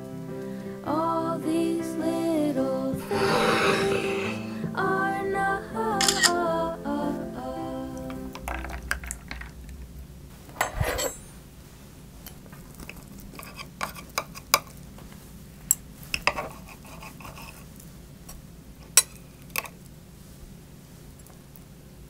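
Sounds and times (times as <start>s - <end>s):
cutlery clatter: 10.6s - 11.3s.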